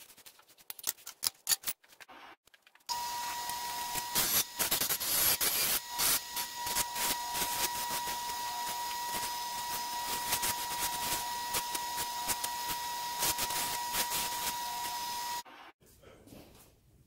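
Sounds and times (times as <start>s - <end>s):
bench grinder whine: 2.9s - 15.5s.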